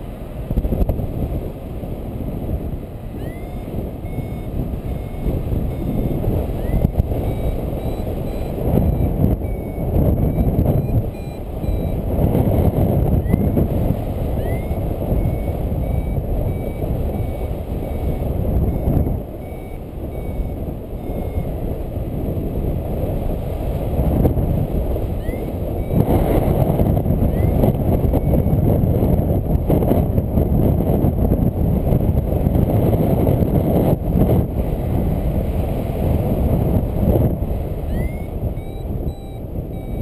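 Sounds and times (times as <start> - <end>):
wind rushing over microphone: 0.0 - 40.0
variometer short high beeps: 3.1 - 21.8, 25.1 - 28.7, 37.8 - 40.0.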